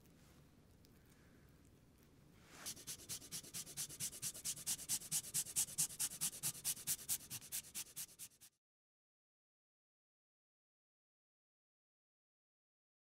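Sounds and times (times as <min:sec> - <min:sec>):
grater scraping food: 0:02.7 - 0:08.5.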